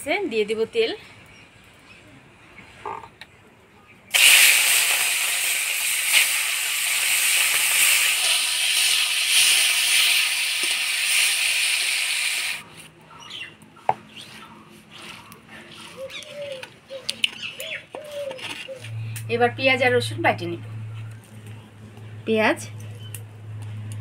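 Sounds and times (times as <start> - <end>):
prawns sizzling in hot oil: 4.1 - 12.7.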